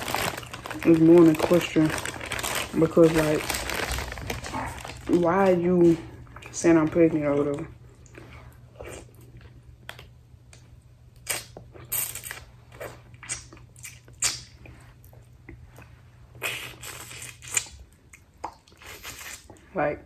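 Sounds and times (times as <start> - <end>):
chewing and crunching seafood: 0.0 - 5.1
low steady hum: 0.0 - 20.0.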